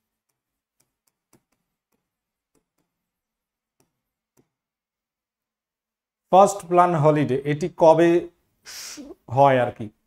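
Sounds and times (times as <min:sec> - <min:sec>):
pen tapping on board: 0:00.2 - 0:03.1, 0:03.7 - 0:04.7.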